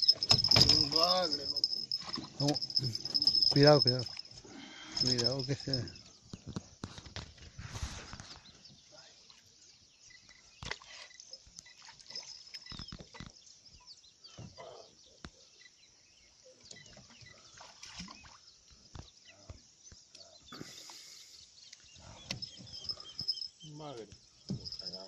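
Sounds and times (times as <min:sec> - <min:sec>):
handling noises: 0:00.0 - 0:04.0
light water splashes: 0:10.3 - 0:12.8, 0:16.8 - 0:18.5.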